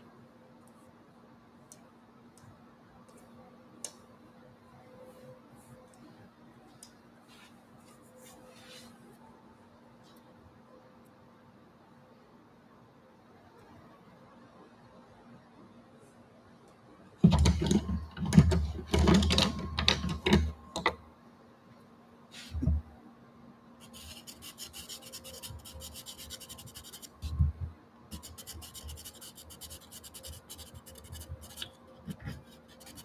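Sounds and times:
pencil scratching on paper: 0:23.8 - 0:27.1, 0:28.1 - 0:33.0.

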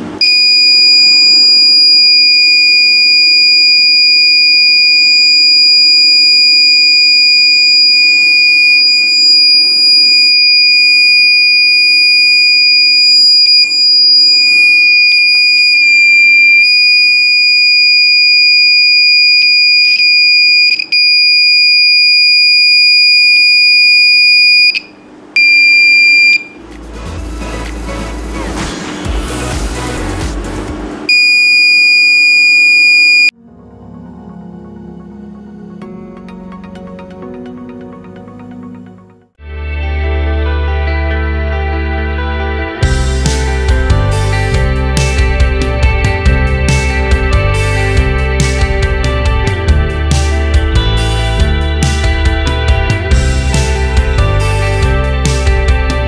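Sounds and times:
high-pitched alarm buzzer: 0:00.2 - 0:26.6, 0:31.1 - 0:33.3.

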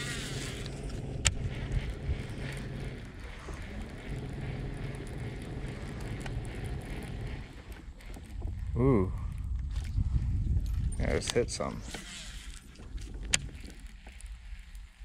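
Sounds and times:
fishing reel being cranked: 0:00.0 - 0:15.0
steady low hum: 0:00.0 - 0:15.0
reel engaging click: 0:11.2 - 0:14.3.

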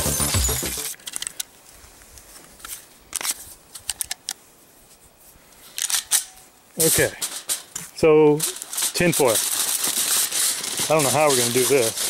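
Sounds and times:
intro music: 0:00.0 - 0:01.0
pistol clicks and taps: 0:03.2 - 0:04.4.

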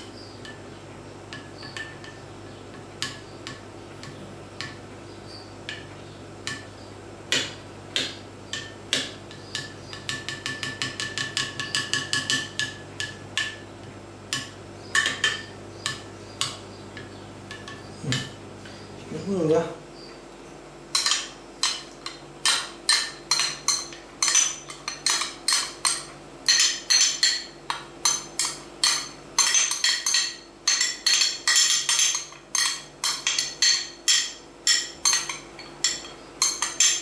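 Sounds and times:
cutlery clinking glass bowl: 0:21.0 - 0:37.0.

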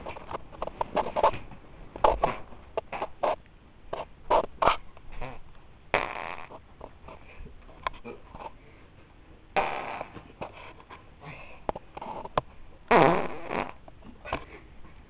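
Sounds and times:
person farting: 0:02.1 - 0:03.4, 0:04.3 - 0:06.6, 0:09.6 - 0:10.3, 0:12.9 - 0:13.9.

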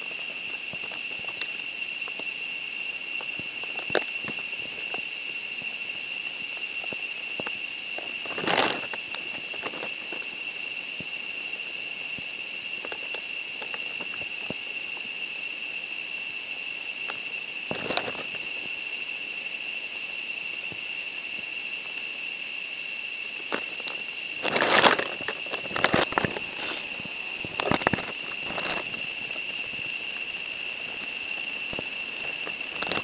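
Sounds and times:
high-pitched insect chorus: 0:00.0 - 0:33.0
rustles or bumps: 0:23.5 - 0:30.0, 0:30.8 - 0:33.0.

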